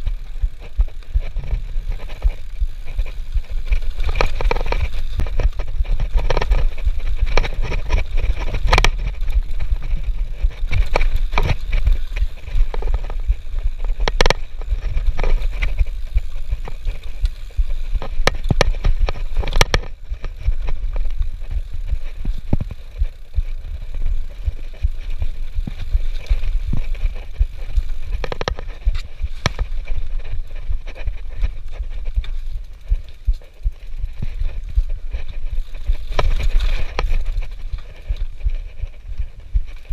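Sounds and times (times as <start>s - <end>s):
bike clattering over bumps: 0.0s - 39.9s
bike tyres rolling on dirt: 0.0s - 39.9s
wind rumble on microphone: 0.0s - 39.9s.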